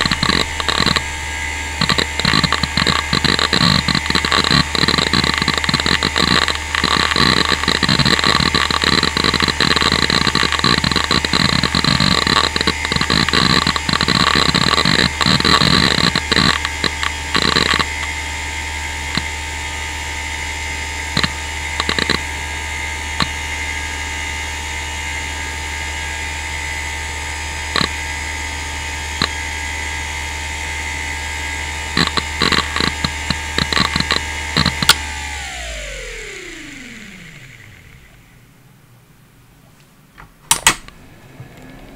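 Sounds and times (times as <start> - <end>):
hard drive head seek clicks: 0.0 - 1.1, 1.8 - 18.2, 21.1 - 22.2, 32.0 - 37.7
hard drive spindle whine: 0.0 - 39.0.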